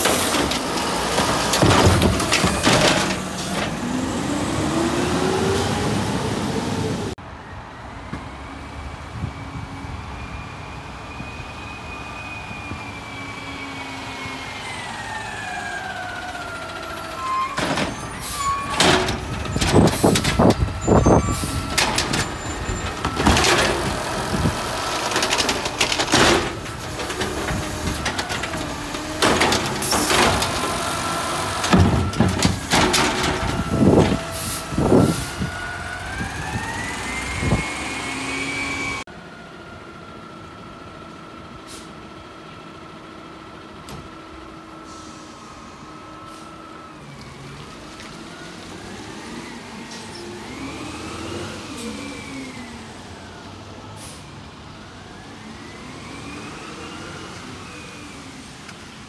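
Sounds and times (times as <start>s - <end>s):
bangs and clatters of bin emptying: 0.0s - 3.8s, 25.1s - 31.0s, 31.6s - 34.3s
garbage truck engine whine: 0.0s - 59.0s.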